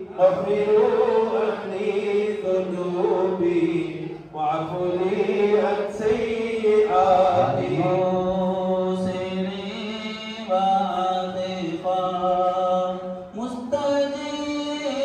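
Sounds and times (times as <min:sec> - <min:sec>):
men chanting into microphones: 0:00.0 - 0:15.0.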